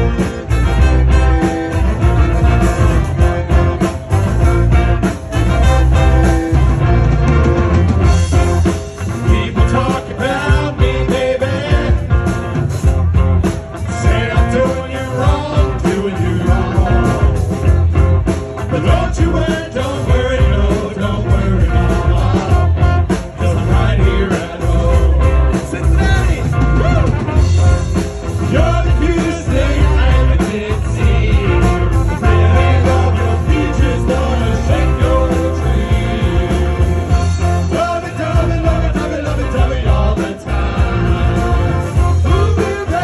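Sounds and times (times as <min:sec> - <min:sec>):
saxophone: 0:00.0 - 0:08.7, 0:26.2 - 0:43.0
accordion: 0:00.0 - 0:43.0
drums: 0:00.0 - 0:43.0
electric guitar: 0:00.0 - 0:43.0
men singing into microphones: 0:09.1 - 0:12.3, 0:13.8 - 0:17.6, 0:18.6 - 0:27.0, 0:28.4 - 0:43.0.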